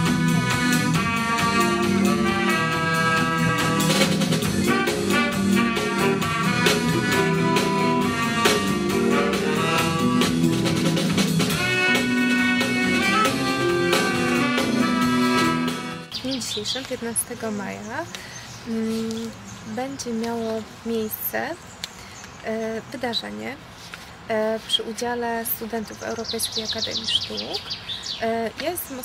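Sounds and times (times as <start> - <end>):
instrumental music with steady beat: 0.0 - 16.1.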